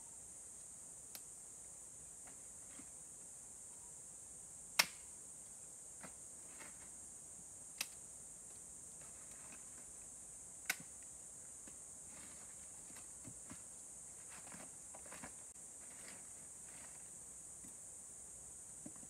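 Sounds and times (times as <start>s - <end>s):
dry sticks snapping: 4.8s - 5.0s, 7.8s - 8.0s.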